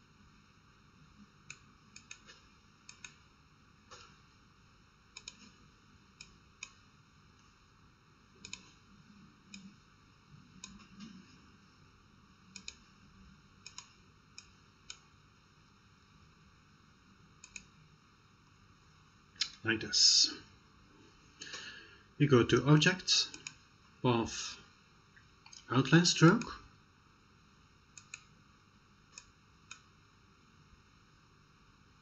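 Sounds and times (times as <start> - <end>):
computer mouse clicks: 1.4 - 3.2, 5.1 - 5.6, 6.2 - 6.8, 8.4 - 8.8, 10.6 - 11.2, 12.5 - 12.9, 13.6 - 15.1, 17.4 - 17.7, 23.3 - 23.6, 27.9 - 28.3, 29.1 - 29.9.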